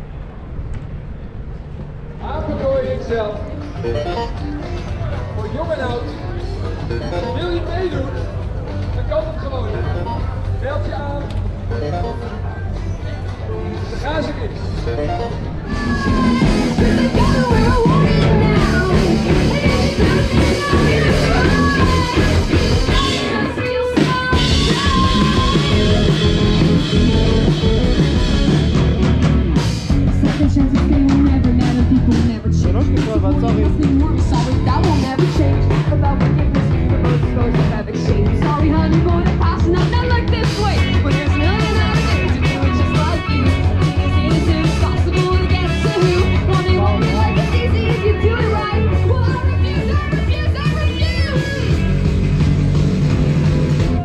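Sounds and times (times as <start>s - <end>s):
rock band playing: 3.6s - 10.6s, 14.5s - 54.0s
electric guitars: 14.6s - 54.0s
woman singing: 15.7s - 26.2s, 30.2s - 32.7s, 33.8s - 51.8s
drum kit beat: 15.7s - 54.0s.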